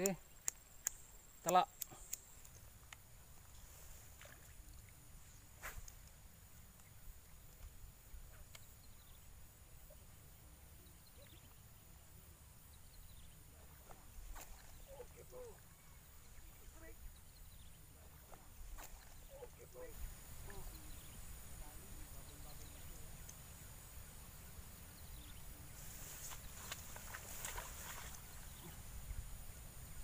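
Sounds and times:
soft clicks: 0.0 - 3.1, 22.5 - 23.5.

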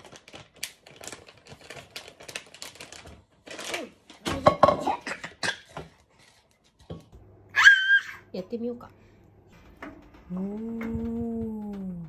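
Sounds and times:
child crying out: 7.6 - 8.2.

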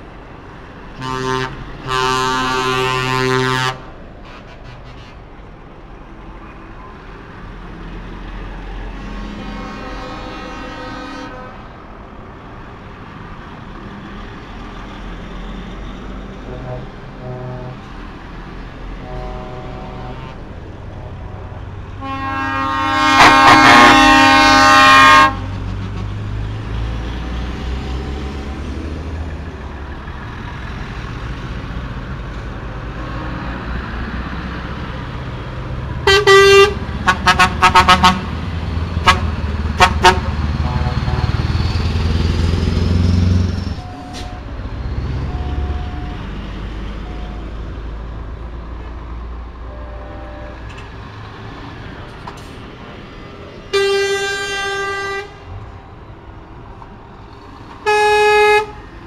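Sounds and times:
diesel lorries passing: 0.0 - 59.0
truck horn blasts: 1.0 - 5.2, 8.9 - 11.7, 16.4 - 17.9, 19.0 - 26.2, 36.0 - 38.4, 39.0 - 41.5, 45.2 - 46.3, 49.7 - 50.8, 53.7 - 55.5, 57.8 - 58.9.

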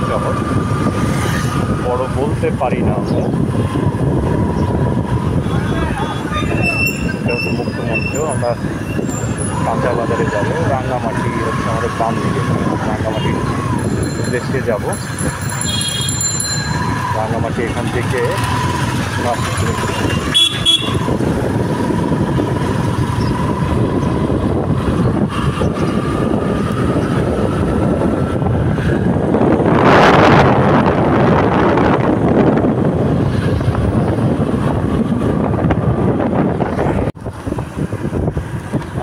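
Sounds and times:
wind on microphone: 0.0 - 39.0
motorcycle engine running: 13.4 - 28.0.

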